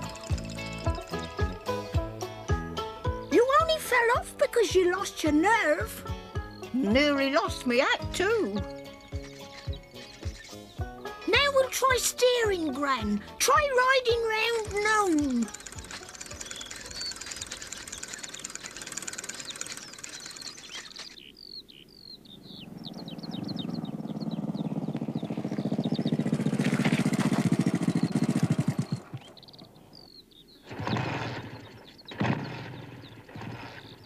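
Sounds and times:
small motorbike engine running: 0.0 - 2.1, 14.3 - 21.2, 23.0 - 29.4
birds chirping: 0.0 - 34.0.

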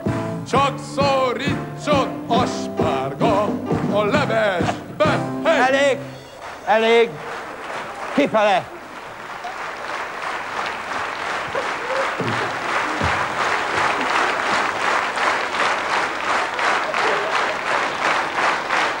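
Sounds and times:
rhythmic clapping in unison: 0.0 - 19.0
audience applauding: 3.8 - 19.0.

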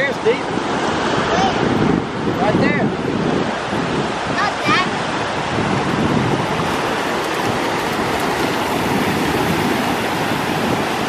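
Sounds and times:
ocean surf washing ashore: 0.0 - 11.0
wind rumbling on microphone: 0.0 - 11.0.

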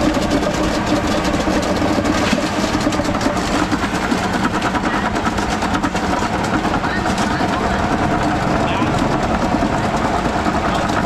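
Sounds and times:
engine running: 0.0 - 11.0
busy street noise: 6.5 - 10.0.

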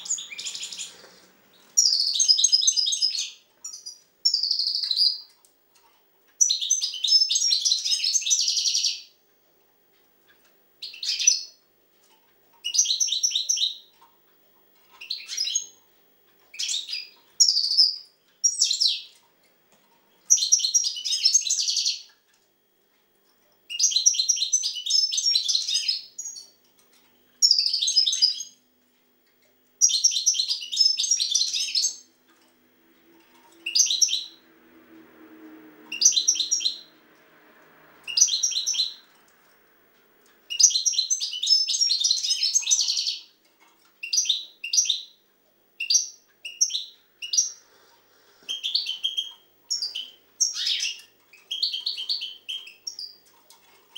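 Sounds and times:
goldfinch twittering song: 0.0 - 5.4, 6.4 - 9.1, 10.8 - 11.6, 12.6 - 13.9, 14.9 - 15.8, 16.5 - 19.2, 20.3 - 22.1, 23.7 - 26.6, 27.4 - 28.6, 29.8 - 32.2, 33.2 - 34.5, 35.8 - 37.0, 38.0 - 39.2, 40.4 - 43.4, 44.0 - 45.2, 45.8 - 47.6, 48.4 - 53.9.

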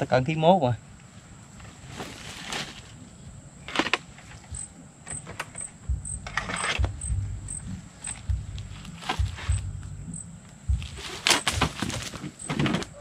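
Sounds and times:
rustling: 1.0 - 13.0
low knocks: 5.9 - 10.1.

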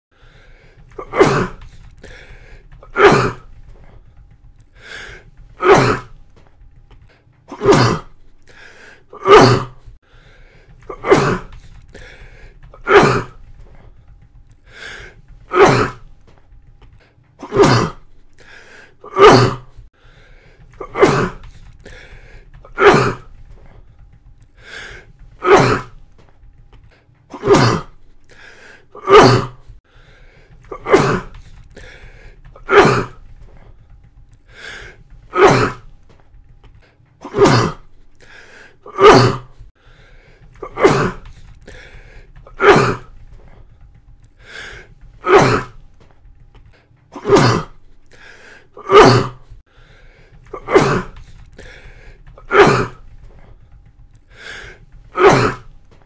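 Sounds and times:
faint breathing: 0.1 - 1.0, 1.6 - 2.8, 3.5 - 5.5, 8.2 - 9.2, 9.8 - 12.8, 13.4 - 15.4, 18.0 - 19.0, 19.8 - 22.6, 23.4 - 25.4, 28.0 - 29.0, 29.6 - 32.6, 33.3 - 35.3, 37.9 - 38.9, 39.6 - 40.6, 41.2 - 42.5, 43.2 - 45.2, 47.8 - 48.8, 49.5 - 50.6, 51.2 - 52.4, 53.1 - 55.1
person coughing: 1.0 - 1.7, 7.5 - 8.1, 10.9 - 11.6, 17.4 - 18.0, 27.3 - 28.0, 30.7 - 31.4, 40.6 - 41.3, 47.2 - 47.8, 50.5 - 51.2, 55.2 - 55.7.

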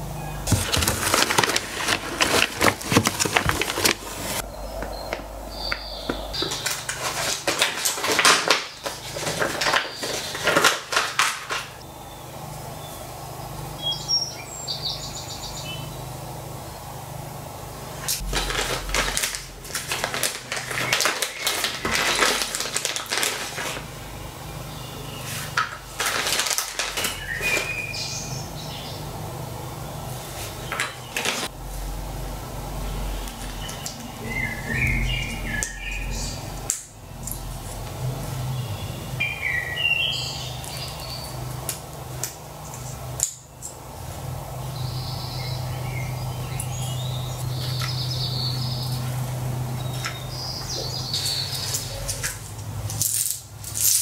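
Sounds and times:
plastic bags crinkling: 0.4 - 4.4, 6.4 - 11.8, 18.1 - 24.0, 25.4 - 27.8.

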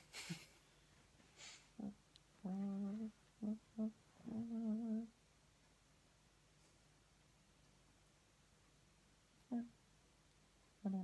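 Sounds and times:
person humming: 1.8 - 5.1, 9.5 - 9.8.

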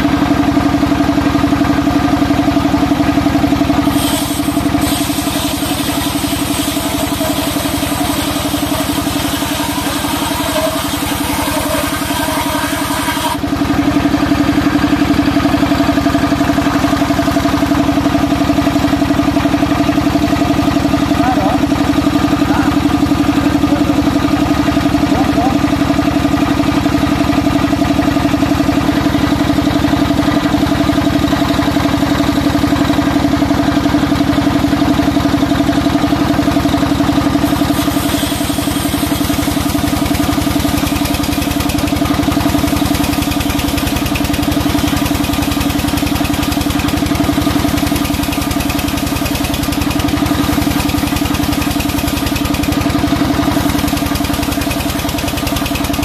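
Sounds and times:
band saw humming: 3.5 - 18.1, 36.9 - 56.0.

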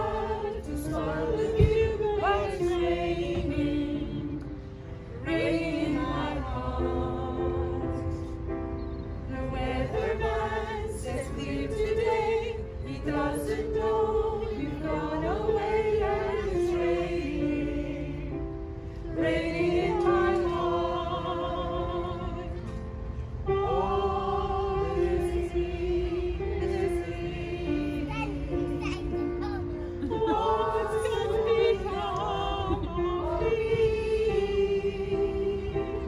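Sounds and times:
choir singing in unison: 0.0 - 8.5, 9.3 - 28.8, 29.9 - 36.0.

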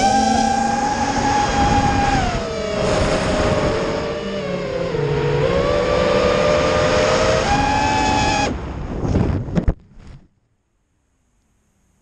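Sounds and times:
quadcopter motors whining: 0.0 - 8.5.

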